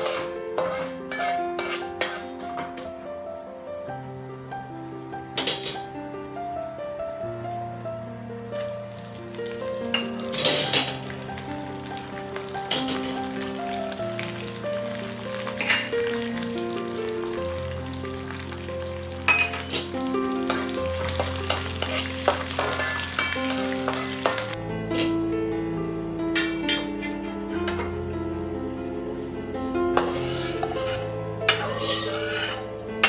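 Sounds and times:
hot oil sizzling: 0:00.0 - 0:03.1, 0:08.3 - 0:25.1, 0:29.9 - 0:33.0
background music: 0:00.0 - 0:33.0.

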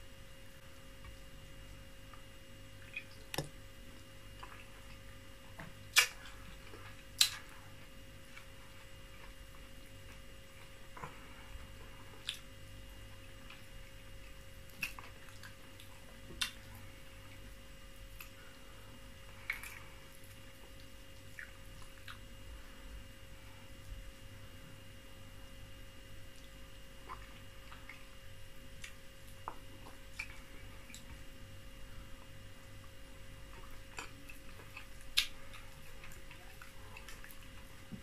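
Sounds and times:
faint steady hum: 0:00.0 - 0:38.0
wet mouth smacks while chewing: 0:05.9 - 0:06.4, 0:07.2 - 0:07.5, 0:14.7 - 0:16.7, 0:33.6 - 0:37.5.

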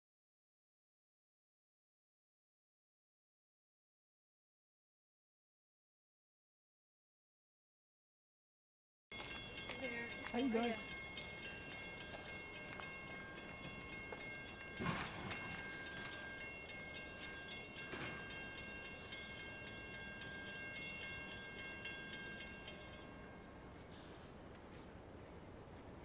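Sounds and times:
railroad crossing bell ringing: 0:09.1 - 0:24.3.

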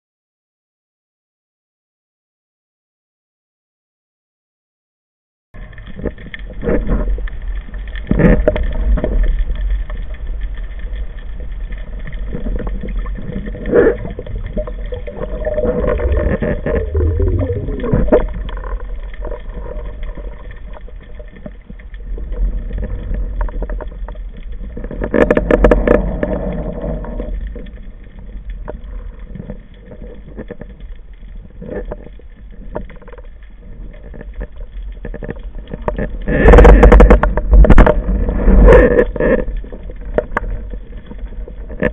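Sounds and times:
underwater rumble of water: 0:05.6 - 0:41.9
water rushing: 0:11.3 - 0:27.5.

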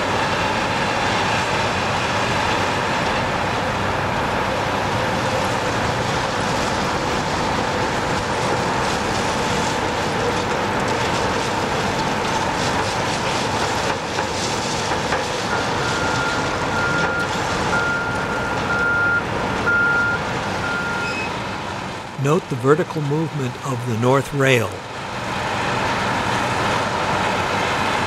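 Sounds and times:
rail tamper machine running: 0:00.0 - 0:28.0
reversing alarm beeping: 0:15.5 - 0:21.3.

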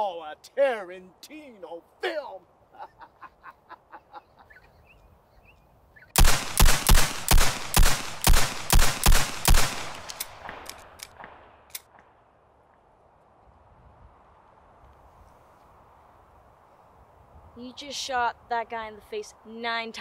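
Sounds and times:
pistol shots: 0:06.2 - 0:12.1.

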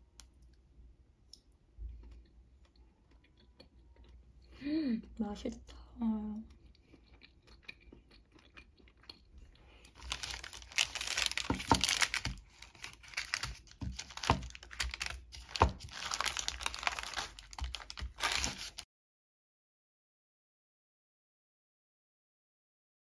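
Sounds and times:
parchment paper crinkling: 0:09.8 - 0:18.8.

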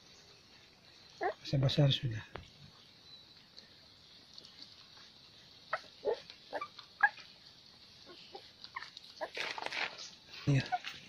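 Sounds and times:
puppies squeaking and whimpering: 0:01.2 - 0:01.5, 0:05.7 - 0:07.3, 0:08.0 - 0:11.0.

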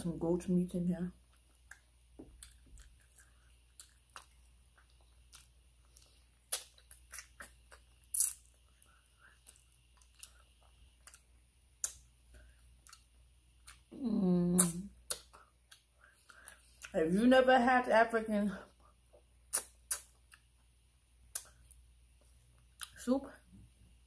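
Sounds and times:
wet mouth smacks while chewing: 0:01.3 - 0:12.1, 0:14.6 - 0:16.9, 0:19.1 - 0:20.5, 0:21.3 - 0:21.8.

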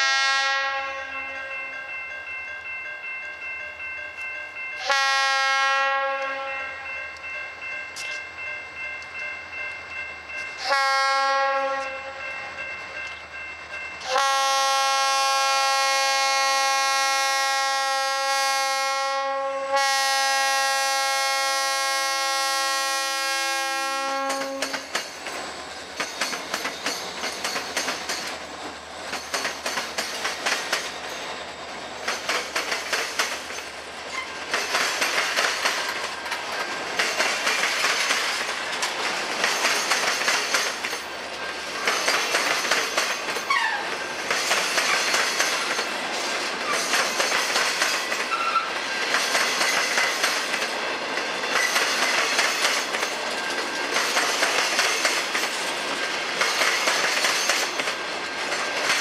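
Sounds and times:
locomotive horn blasts: 0:00.0 - 0:01.5, 0:04.8 - 0:06.9, 0:10.6 - 0:12.2, 0:14.0 - 0:24.9
wheels clicking over rail joints: 0:24.1 - 0:59.0.

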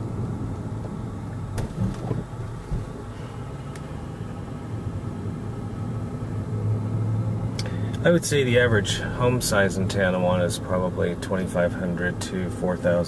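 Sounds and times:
tyre and road noise: 0:00.0 - 0:04.2
car engine hum: 0:00.0 - 0:13.0.

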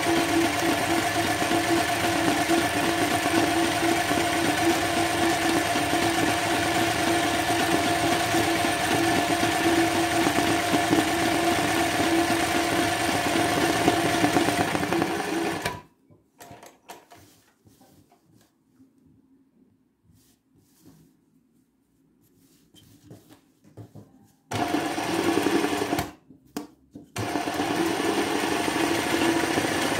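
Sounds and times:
sewing machine stitching: 0:00.0 - 0:16.7, 0:24.5 - 0:26.2, 0:27.2 - 0:29.9.

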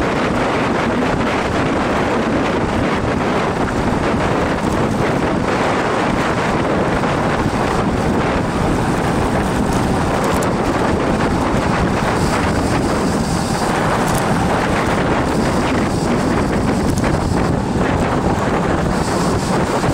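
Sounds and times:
wind buffeting microphone: 0:00.0 - 0:19.9.

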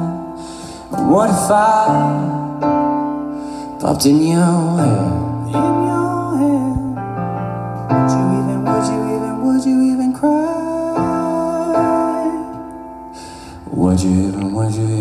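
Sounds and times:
person singing: 0:00.0 - 0:02.9, 0:03.6 - 0:07.0, 0:07.9 - 0:12.6, 0:13.6 - 0:15.0.

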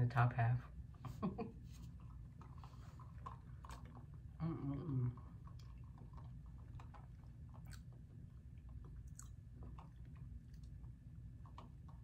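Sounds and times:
close-up chewing: 0:01.7 - 0:12.0
soft mouth clicks and smacks: 0:05.2 - 0:08.0, 0:08.6 - 0:12.0.

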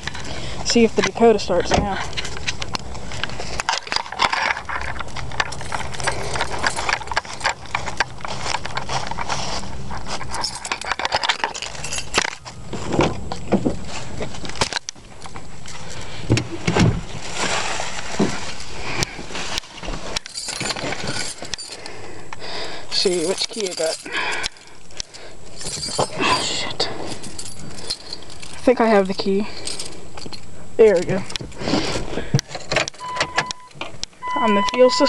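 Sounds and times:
handheld camera rustling and clicking: 0:01.0 - 0:16.1
footsteps on grass: 0:07.2 - 0:10.4.

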